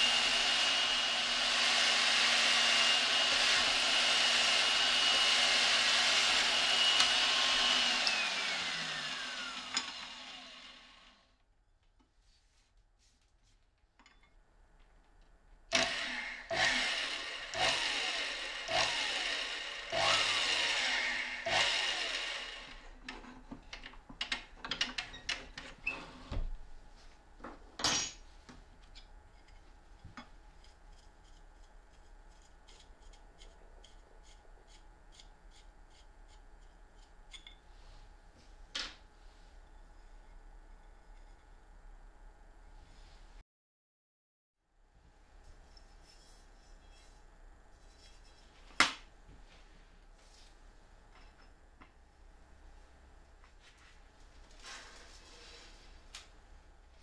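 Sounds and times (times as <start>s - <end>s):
drill press whining through metal: 0.0s - 11.2s
clamps clicking and knocking: 23.0s - 25.8s.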